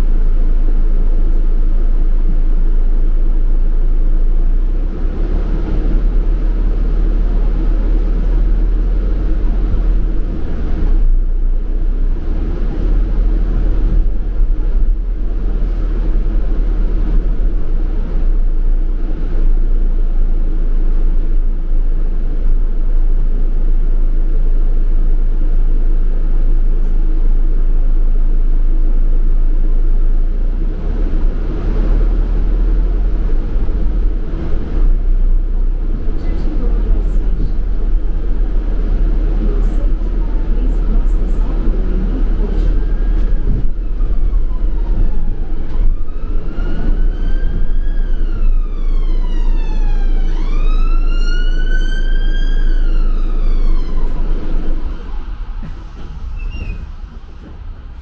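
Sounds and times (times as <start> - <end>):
bus engine rumble: 0.0 - 58.0.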